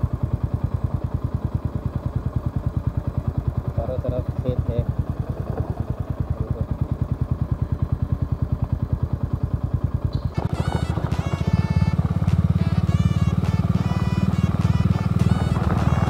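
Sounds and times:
motorcycle engine running: 0.0s - 16.0s
background music: 10.4s - 16.0s.

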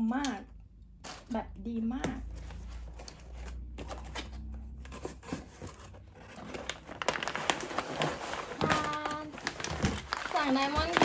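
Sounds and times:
cardboard rustling: 2.4s - 11.0s
plastic bags crinkling: 5.8s - 11.0s.

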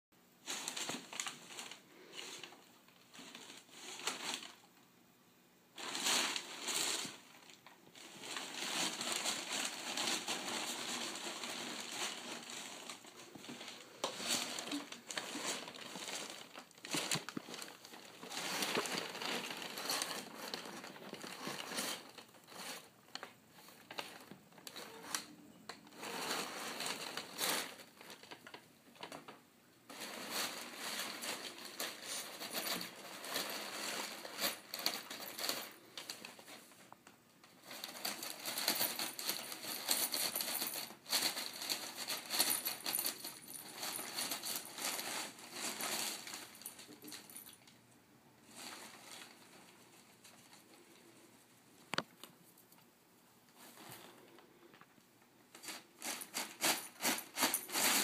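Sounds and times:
packing paper crinkling: 0.4s - 4.7s, 5.8s - 29.3s, 29.9s - 47.6s.

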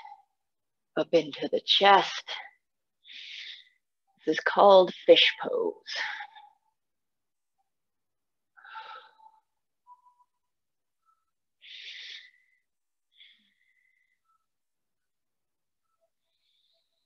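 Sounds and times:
person breathing with faint whistle: 8.6s - 10.3s.

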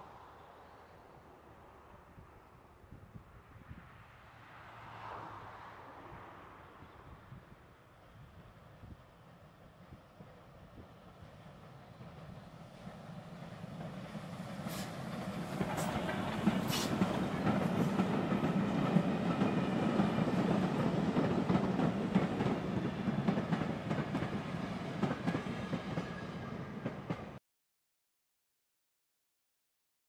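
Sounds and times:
train wheels rumbling: 9.3s - 27.4s.

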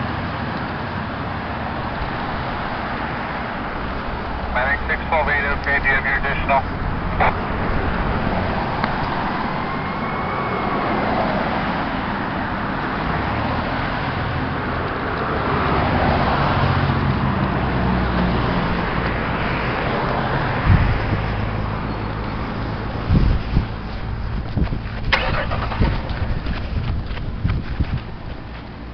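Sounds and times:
road traffic: 0.0s - 28.9s
distant fire engine siren: 4.4s - 12.2s.

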